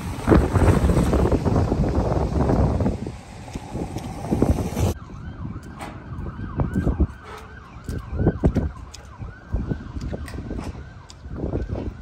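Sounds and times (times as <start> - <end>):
wind rumbling on microphone: 0.0 - 12.0
siren yelping: 4.9 - 12.0.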